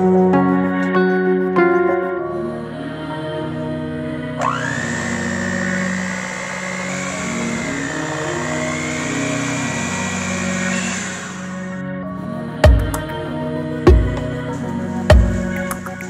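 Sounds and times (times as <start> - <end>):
electric hand mixer whining: 4.4 - 11.9.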